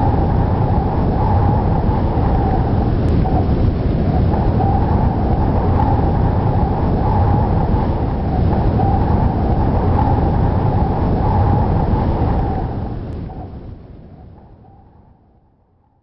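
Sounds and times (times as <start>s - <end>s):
howling wind: 0.0s - 16.0s.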